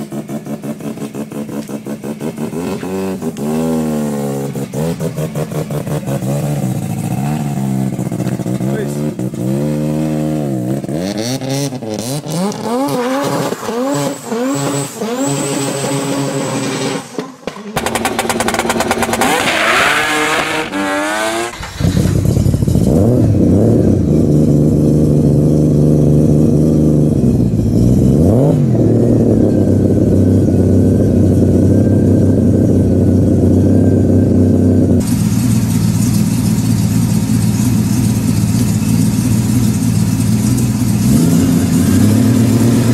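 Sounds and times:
engine revving: 0.0s - 35.9s, 38.1s - 42.9s
engine idling: 29.6s - 42.9s.

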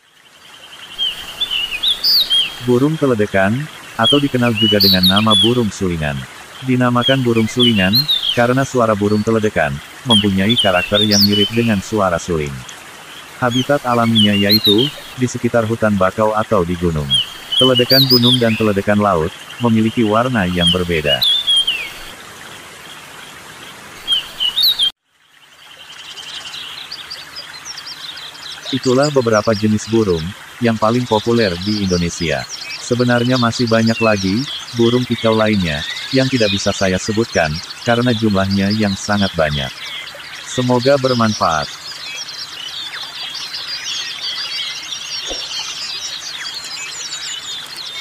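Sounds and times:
background hiss: 0.2s - 48.0s
bird rapid chattering song: 0.5s - 22.1s, 24.0s - 24.9s, 25.9s - 48.0s
bird whistling song: 0.9s - 2.9s, 3.9s - 5.8s, 6.9s - 9.2s, 10.1s - 11.9s, 13.4s - 15.2s, 17.0s - 18.9s, 20.4s - 22.1s, 24.0s - 24.9s, 31.5s - 48.0s.

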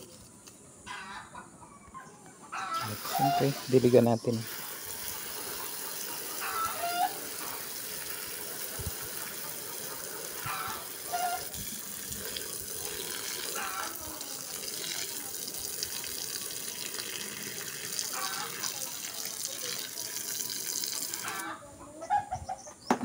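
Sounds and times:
hose spraying water onto soil: 2.8s - 21.5s.

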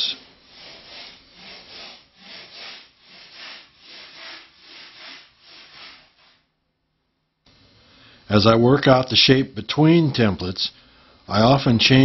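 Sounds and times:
hand tool rubbing on foam: 0.0s - 6.5s.

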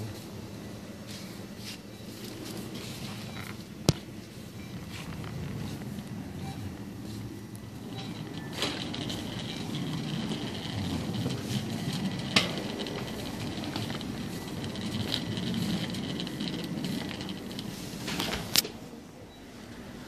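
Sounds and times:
shopping cart rattling on tiles: 7.7s - 18.6s.

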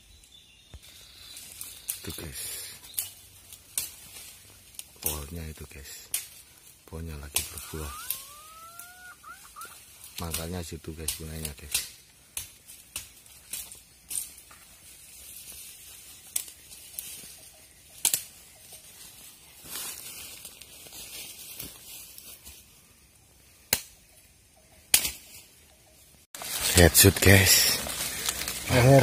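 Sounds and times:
sharp clicks and cracks: 10.2s - 14.4s, 18.0s - 18.3s.

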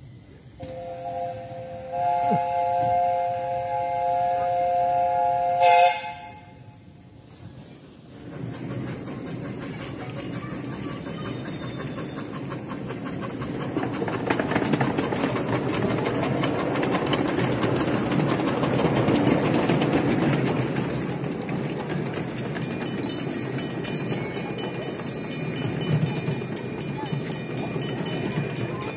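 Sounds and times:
steam locomotive exhaust beats: 0.1s - 28.9s
wheels clicking over rail joints: 8.1s - 28.9s.

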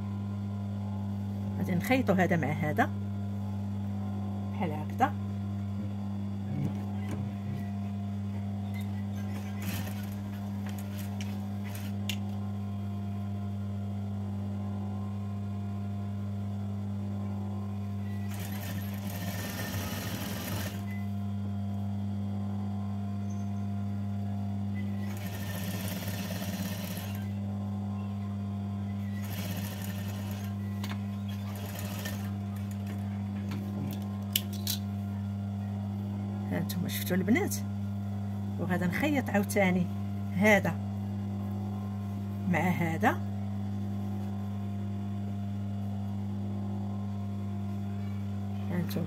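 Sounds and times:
low electric hum: 0.0s - 49.0s
sewing machine stitching: 18.3s - 20.9s, 25.0s - 27.3s, 29.2s - 30.5s.

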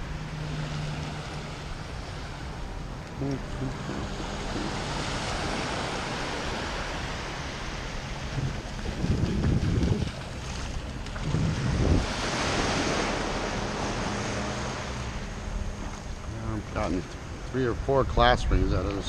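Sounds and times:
waves breaking on sand: 0.0s - 17.9s
wind buffeting microphone: 3.5s - 14.5s.

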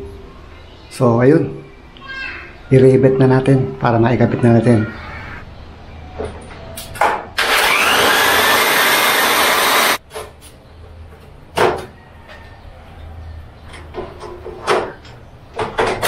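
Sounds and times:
electric drill boring metal: 7.4s - 10.0s.

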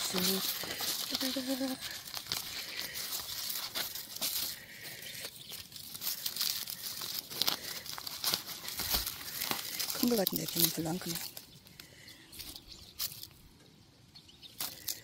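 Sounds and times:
dry onion leaves rustling: 0.0s - 13.5s.

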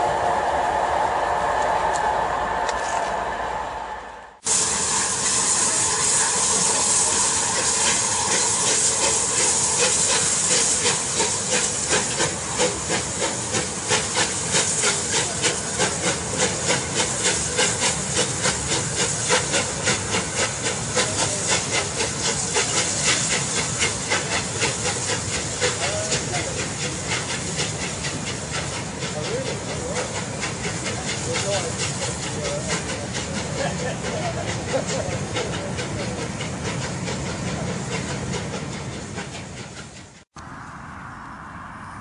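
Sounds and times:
steam locomotive hissing: 0.0s - 40.4s
steam locomotive regular beat: 0.0s - 40.4s.

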